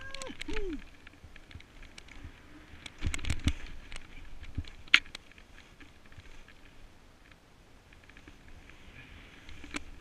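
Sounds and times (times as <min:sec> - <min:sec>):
snowboard sliding through powder snow: 0:08.4 - 0:10.0.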